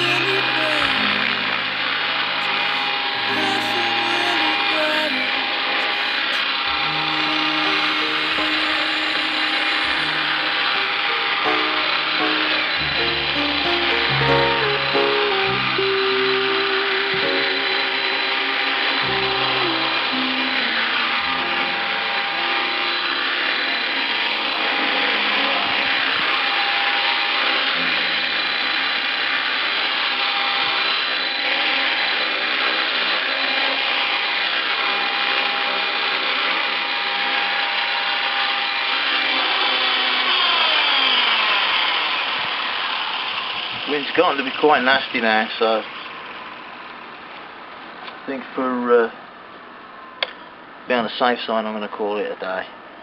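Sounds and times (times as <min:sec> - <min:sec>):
electric helicopter rotor whine: 0:16.8 - 0:43.8.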